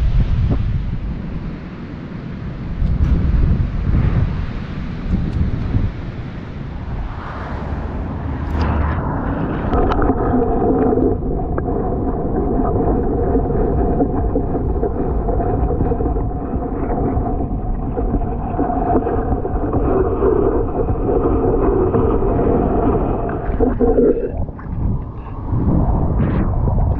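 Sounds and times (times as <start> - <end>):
wind buffeting microphone: 0.0 - 26.9
faint underwater gurgling: 6.8 - 26.9
muffled underwater hum: 6.8 - 26.9.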